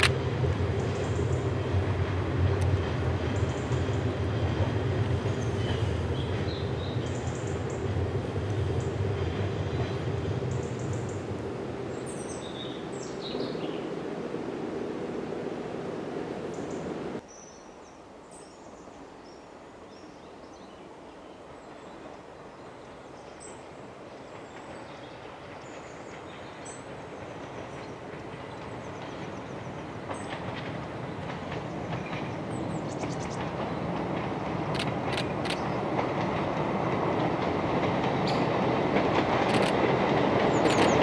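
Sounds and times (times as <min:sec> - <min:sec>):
diesel train approaching: 0:00.0 - 0:17.2, 0:21.4 - 0:41.0
birds chirping: 0:05.2 - 0:08.0, 0:09.6 - 0:14.1, 0:16.2 - 0:35.9, 0:40.4 - 0:41.0.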